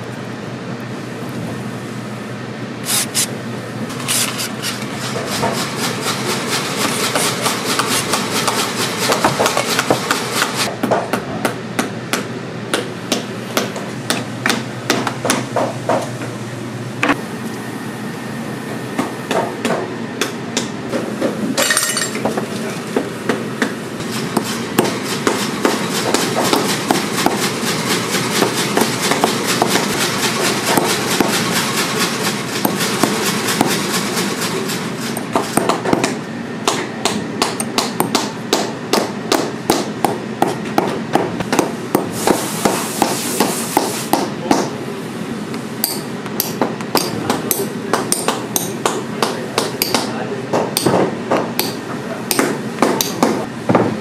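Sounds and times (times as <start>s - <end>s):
hammer striking nails: 35.3s - 44.7s, 45.8s - 53.4s.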